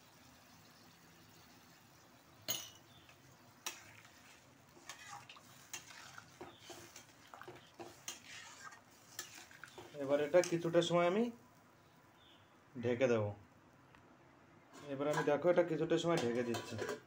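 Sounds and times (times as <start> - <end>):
faint sizzle: 0.0 - 13.6
spoon scraping a pot: 3.6 - 10.6, 16.2 - 17.0.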